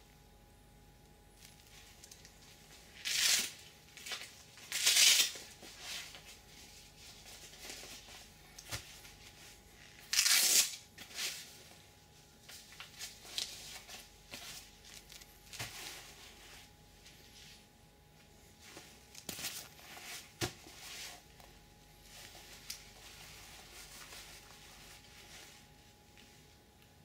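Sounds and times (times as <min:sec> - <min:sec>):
glove rustling and rubbing: 0:01.4 - 0:26.7
glove tearing rasps: 0:10.1 - 0:10.8.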